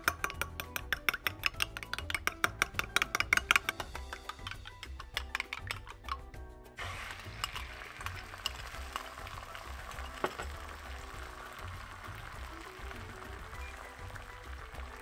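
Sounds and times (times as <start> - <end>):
background music: 0.0 - 15.0
egg sizzling in hot oil: 6.8 - 15.0.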